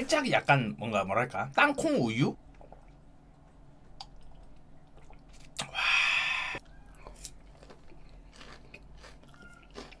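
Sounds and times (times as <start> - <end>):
man chewing food: 2.4 - 5.8, 6.4 - 10.0.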